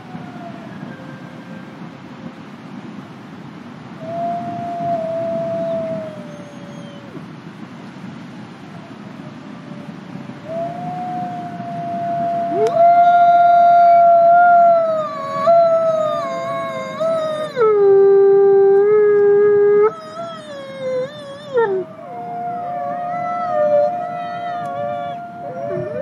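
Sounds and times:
wolf howling: 4.0 - 7.2, 10.4 - 26.0
faint second howl: 4.0 - 7.3, 8.5 - 26.0.

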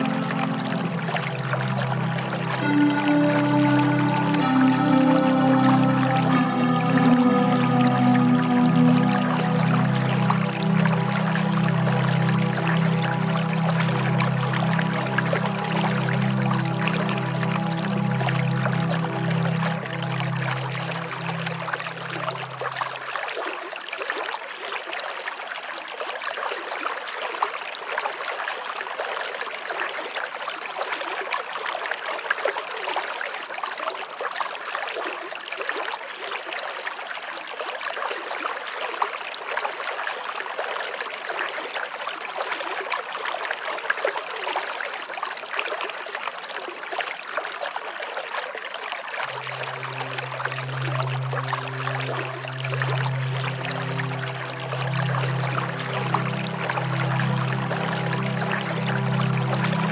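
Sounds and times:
low music notes: 0.0 - 23.1, 49.2 - 59.9
water trickling and splashing: 0.0 - 59.9.

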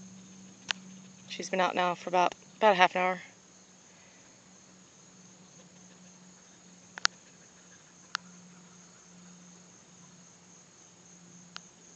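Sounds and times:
faint low hum: 0.0 - 11.9
insects trilling: 0.0 - 11.9
sharp clicks: 7.0 - 7.2.

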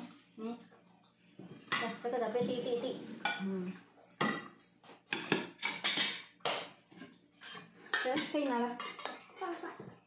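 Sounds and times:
metal spoons clinking on bowls: 3.2 - 9.8.

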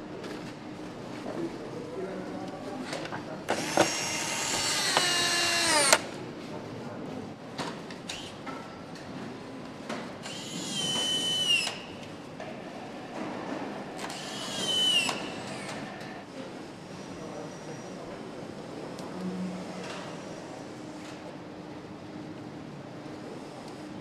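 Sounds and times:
power tool whining: 3.5 - 6.1, 10.2 - 11.8, 14.0 - 16.2.

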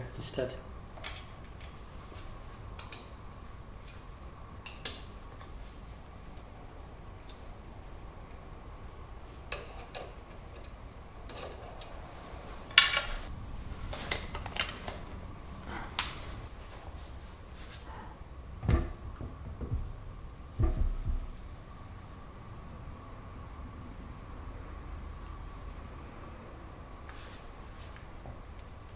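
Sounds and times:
metallic clicks and clanks of tools: 1.0 - 1.7, 9.5 - 12.0.

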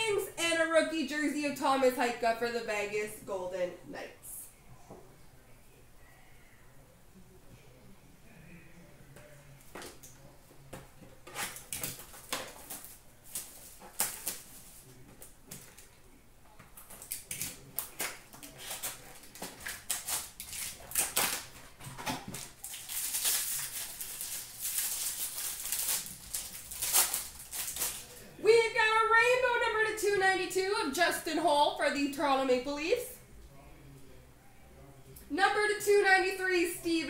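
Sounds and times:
plastic wrapping tearing and crinkling: 11.2 - 15.9, 16.8 - 28.2.

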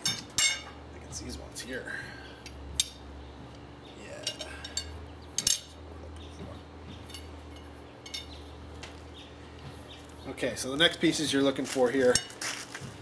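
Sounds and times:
steel tubes clinking together: 4.2 - 5.8.

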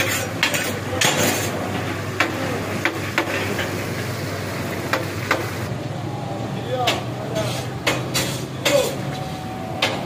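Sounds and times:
hot oil sizzling: 0.0 - 5.7.

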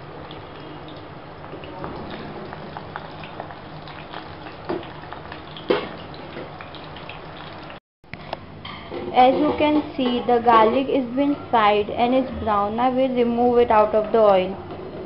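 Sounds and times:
oil crackling and popping: 0.3 - 7.8.

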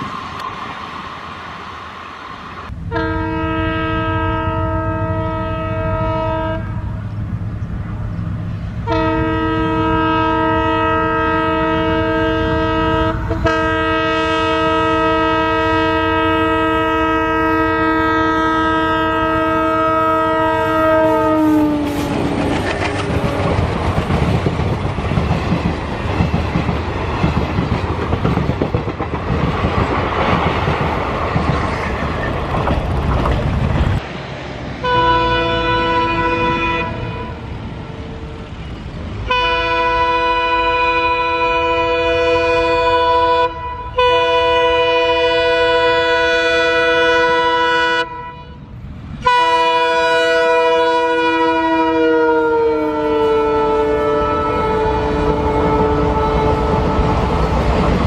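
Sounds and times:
locomotive horn: 2.9 - 7.1, 8.8 - 23.6, 34.8 - 38.6, 39.2 - 57.6
wheels clattering over rail joints: 22.1 - 34.0.

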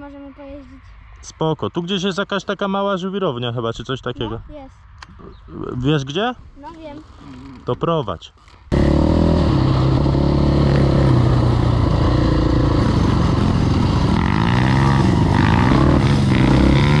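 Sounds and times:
quad bike engine revving: 8.7 - 17.0.

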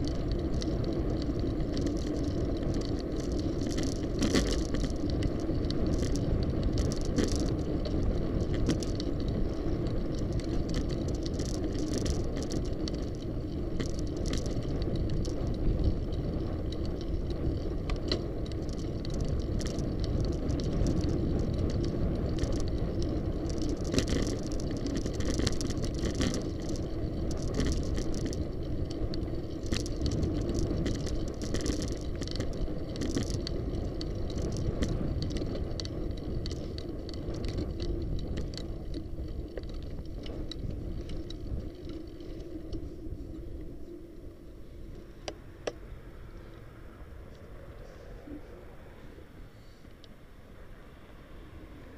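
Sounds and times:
small rattles and clicks: 0.0 - 46.6
bicycle tyres on road: 0.0 - 51.9.

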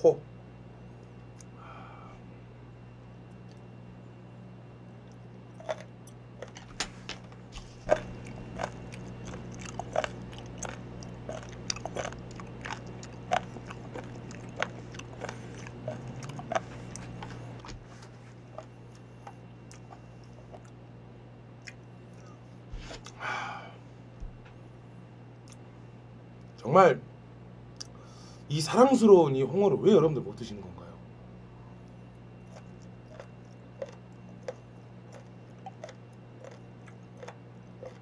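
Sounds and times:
steady low hum: 0.0 - 38.0
close chewing with crunches: 5.0 - 20.8, 31.8 - 38.0.

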